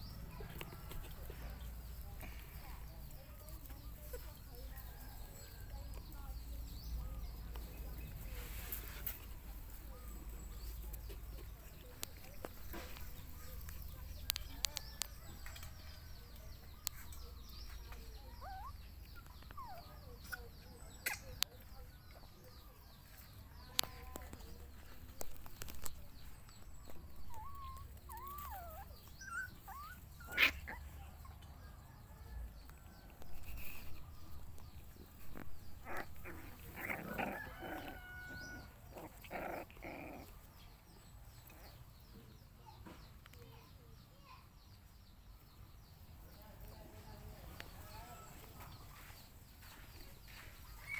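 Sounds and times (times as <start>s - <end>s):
puppies whining and yipping: 18.2s - 21.3s, 27.0s - 31.8s
puppies yelping and barking: 18.2s - 21.4s, 26.7s - 40.6s.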